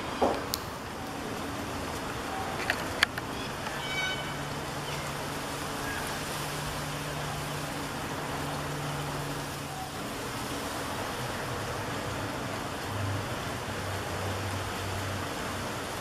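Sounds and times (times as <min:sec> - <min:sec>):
distant road traffic: 0:00.0 - 0:16.0
low engine hum: 0:00.0 - 0:16.0.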